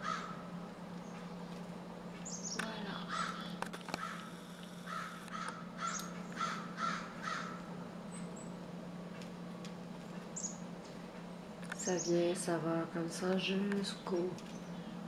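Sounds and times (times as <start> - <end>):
crow cawing: 0.0 - 0.5, 3.1 - 7.7.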